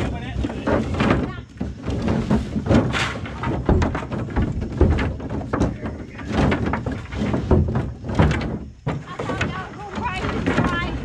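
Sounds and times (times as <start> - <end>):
wooden sticks clattering together: 0.0 - 11.0.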